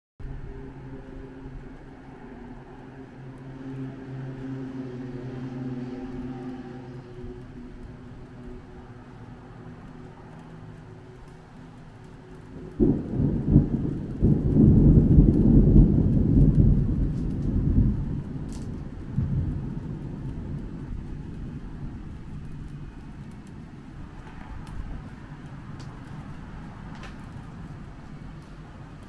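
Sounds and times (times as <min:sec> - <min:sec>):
rolling thunder rumble: 0:00.2 - 0:29.0
thunder crack: 0:12.4 - 0:29.0.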